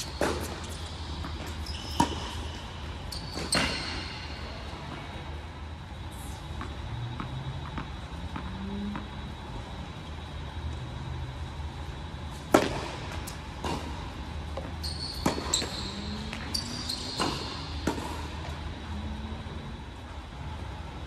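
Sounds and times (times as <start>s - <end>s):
shoe squeaks: 0.0s - 4.6s, 14.6s - 17.9s
low hum of a hall: 0.0s - 21.0s.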